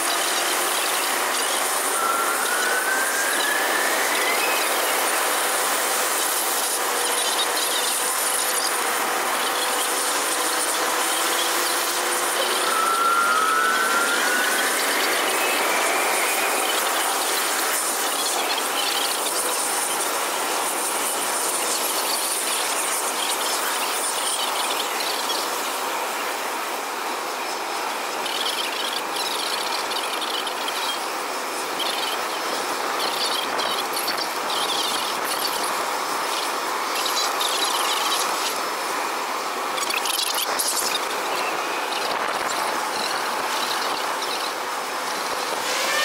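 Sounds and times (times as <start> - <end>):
jet engines running: 0.0 - 46.0
faint high chirping: 10.5 - 19.4.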